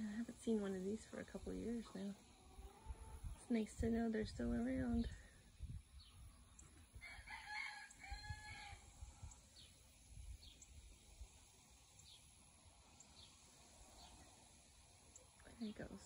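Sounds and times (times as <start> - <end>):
rooster crowing: 7.0 - 8.9.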